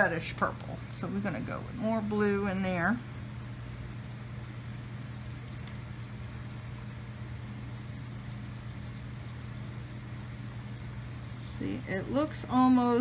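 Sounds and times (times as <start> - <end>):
low room hum: 0.0 - 13.0
paintbrush scratching on paper: 5.0 - 7.0, 7.8 - 10.3.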